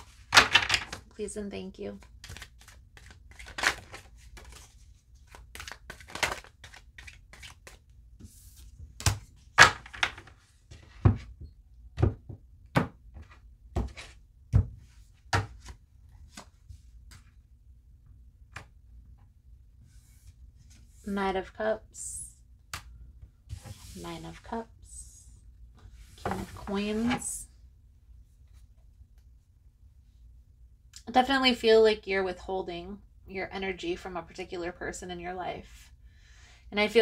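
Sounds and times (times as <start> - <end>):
papery card rustling: 2.0 - 8.7.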